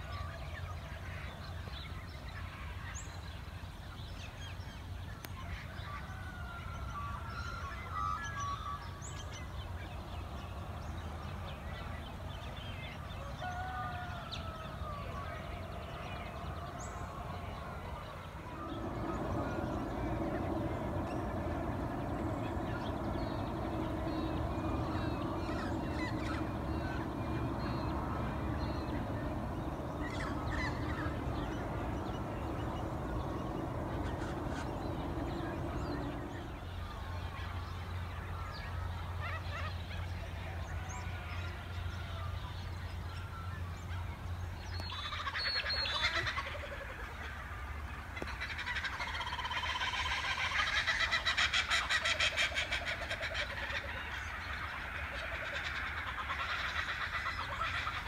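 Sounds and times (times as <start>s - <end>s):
steady low drone: 15.2s - 39.2s
low rumble: 18.1s - 37.8s
birds chirping in dawn chorus: 18.2s - 36.9s.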